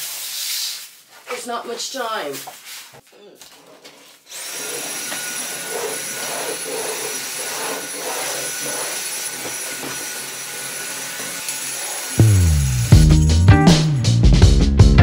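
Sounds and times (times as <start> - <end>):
stick vacuum whining: 3.8 - 13.1.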